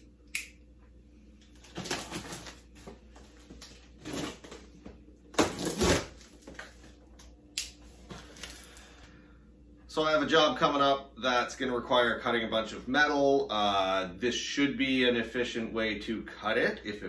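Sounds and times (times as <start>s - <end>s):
packing tape ripping: 1.6s - 2.7s, 3.6s - 4.6s, 5.3s - 6.7s.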